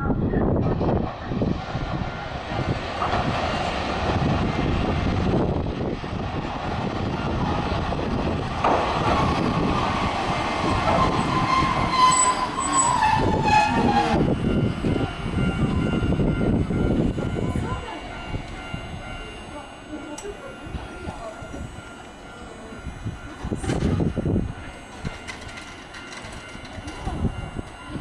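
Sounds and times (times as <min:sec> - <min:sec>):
tram wheels rumbling on rails: 0:00.0 - 0:28.0
high brake squeal: 0:11.0 - 0:14.2.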